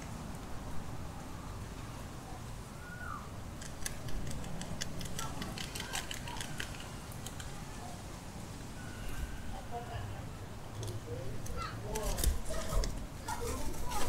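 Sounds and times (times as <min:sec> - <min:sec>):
guinea pigs chewing leaf: 0:03.6 - 0:07.9, 0:10.8 - 0:14.0
faint high squeak: 0:08.8 - 0:09.6.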